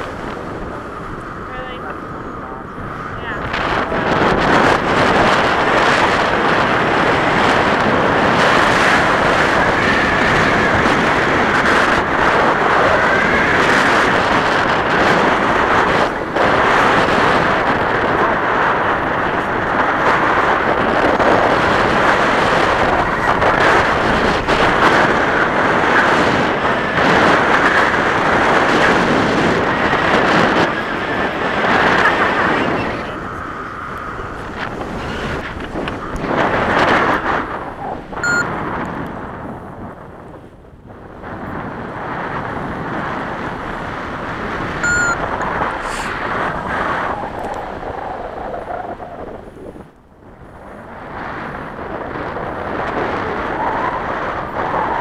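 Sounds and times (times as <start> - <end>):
wind buffeting microphone: 0.0 - 55.0.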